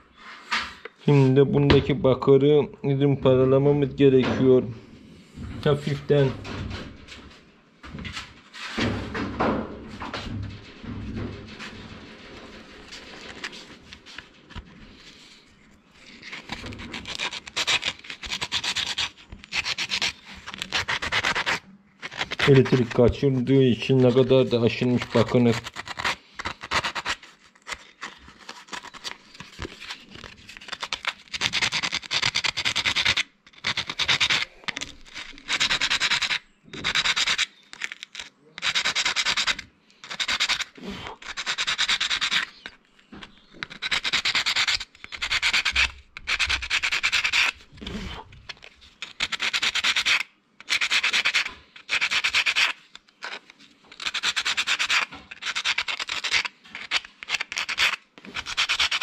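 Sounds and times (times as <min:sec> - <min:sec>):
sandpaper rubbing on metal: 0:16.3 - 0:27.4, 0:30.7 - 0:37.5, 0:38.6 - 0:42.6, 0:43.7 - 0:47.6, 0:49.0 - 0:53.4, 0:54.0 - 0:59.0.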